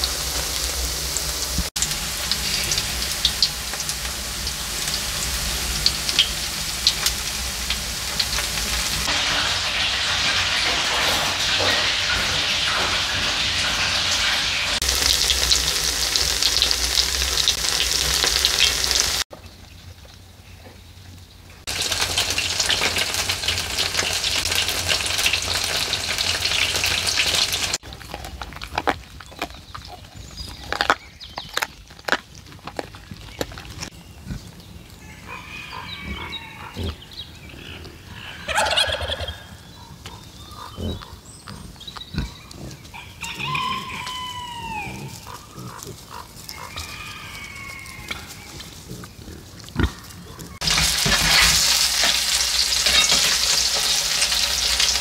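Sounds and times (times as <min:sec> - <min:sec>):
pancakes sizzling in a pan: 0:00.0 - 0:19.3, 0:21.7 - 0:27.8, 0:50.6 - 0:55.0
pigs grunting and squealing: 0:33.6 - 0:52.7
rustling dry leaves and twigs: 0:40.0 - 0:55.0.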